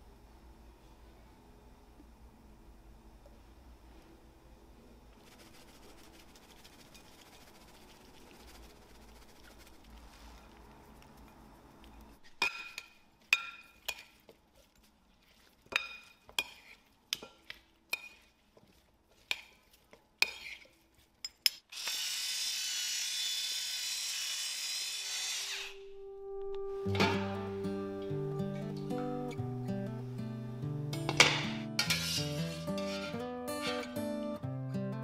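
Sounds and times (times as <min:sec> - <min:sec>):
guitar music: 0:25.8 - 0:35.0.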